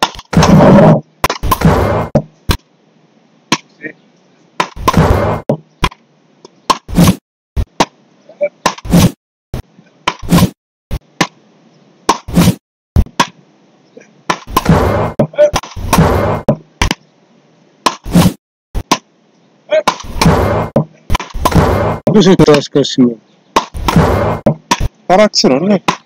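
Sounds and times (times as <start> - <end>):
wooden paddles whacking ball: 0.0 - 2.7, 3.5 - 3.7, 4.6 - 6.0, 6.7 - 8.0, 8.6 - 9.2, 10.0 - 11.4, 12.1 - 13.4, 14.3 - 17.0, 17.8 - 19.1, 19.8 - 22.2, 23.6 - 25.0.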